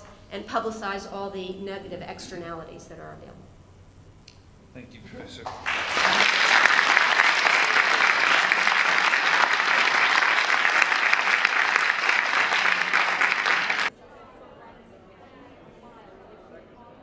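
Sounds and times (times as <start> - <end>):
audience applauding: 5.5 - 13.9.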